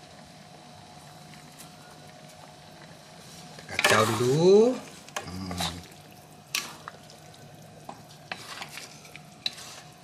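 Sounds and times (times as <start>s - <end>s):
wooden spatula scraping metal wok: 8.3s - 10.0s.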